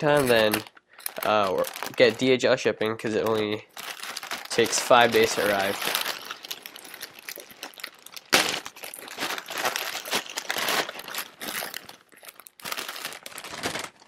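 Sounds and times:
plastic mailer bag crinkling: 0.0 - 2.4, 3.1 - 14.0
package pulled from plastic: 0.1 - 2.2.

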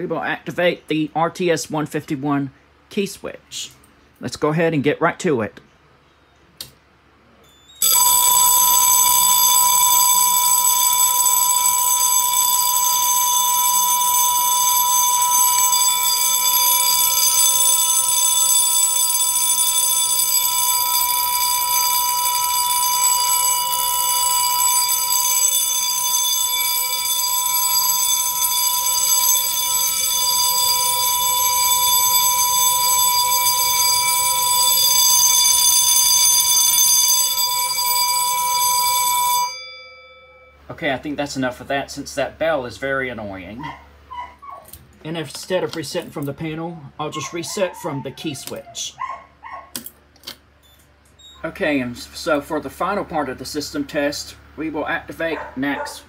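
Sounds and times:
fire alarm bell ringing: 7.6 - 40.7.

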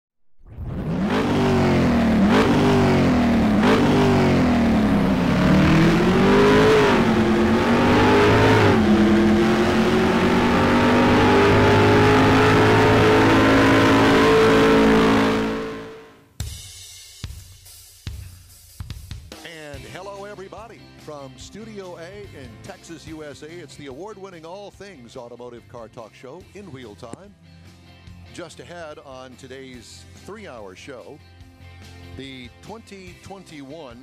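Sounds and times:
car engine revving: 0.5 - 16.2.

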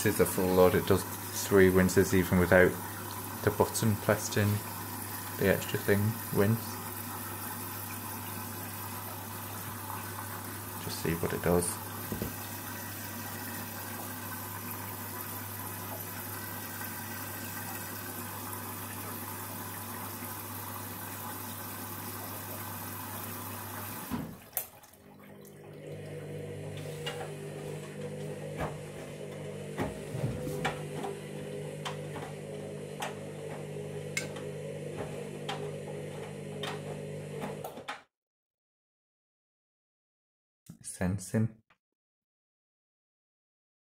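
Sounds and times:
washing machine motor hum: 0.0 - 37.9
water filling washing machine: 0.0 - 37.9
water splashes: 23.3 - 26.3.

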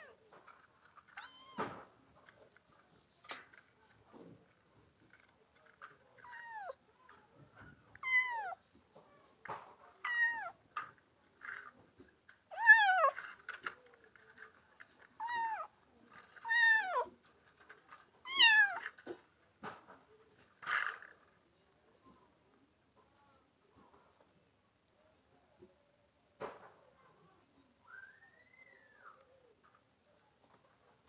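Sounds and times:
kittens meowing: 8.0 - 8.6.

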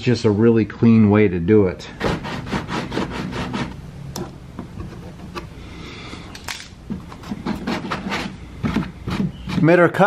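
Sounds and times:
low steady hum: 0.0 - 9.6
sandpaper rasping on plastic: 2.0 - 3.8, 7.2 - 10.0.

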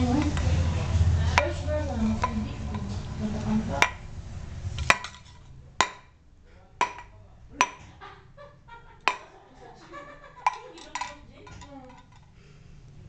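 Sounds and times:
tin can clinking on tiled floor: 10.4 - 12.4.

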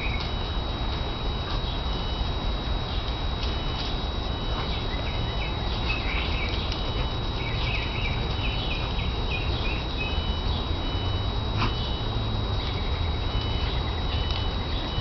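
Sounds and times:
steady low rumble: 0.0 - 15.0
small birds chirping: 4.5 - 15.0.

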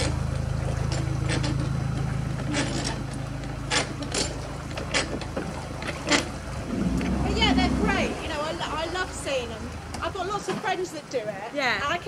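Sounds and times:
diesel engine throbbing: 6.3 - 10.0.

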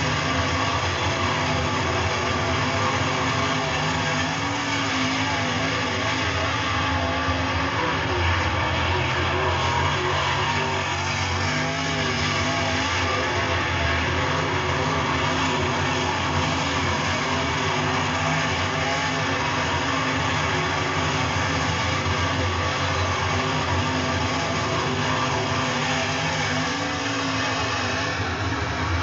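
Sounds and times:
race car engines roaring: 0.0 - 29.0.

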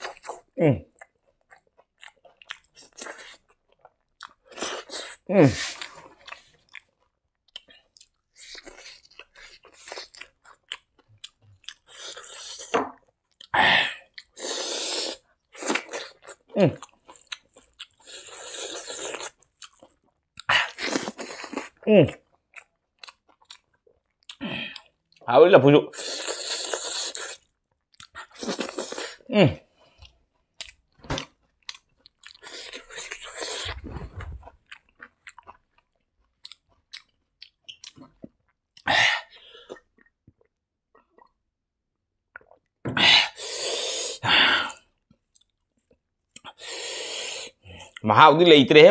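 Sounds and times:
person chewing food: 0.0 - 25.3, 25.9 - 41.4, 42.3 - 48.0
man breathing hard through mouth: 46.6 - 47.7.

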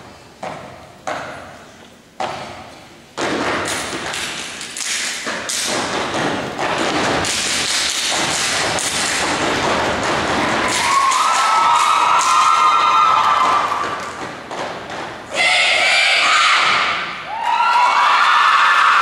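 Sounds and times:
stomps on wooden stage: 2.2 - 4.3, 5.2 - 15.2
hand claps: 3.7 - 5.9, 7.1 - 9.4, 10.6 - 14.2.

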